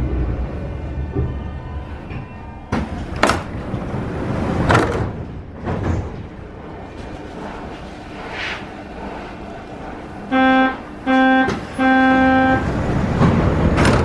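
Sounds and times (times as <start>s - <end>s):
low hum of standing train: 0.0s - 14.0s
train doors sliding shut: 0.9s - 14.0s
train door warning beeps: 10.2s - 12.8s.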